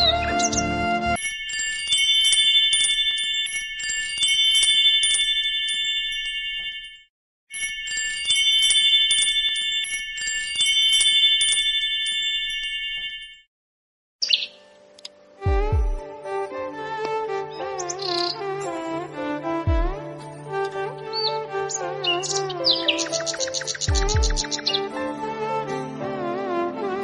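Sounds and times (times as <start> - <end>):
wind chime ringing: 1.2 - 13.5.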